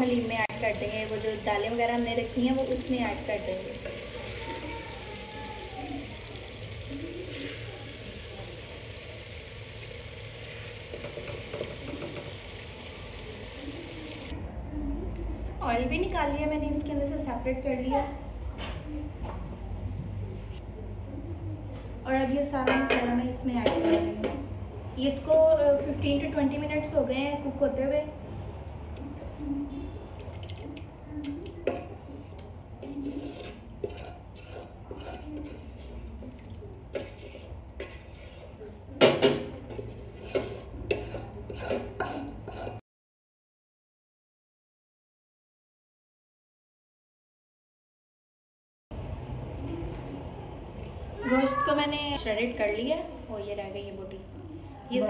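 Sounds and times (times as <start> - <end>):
food sizzling in oil: 0.0 - 14.3
wooden spoon scraping pot: 32.7 - 42.8.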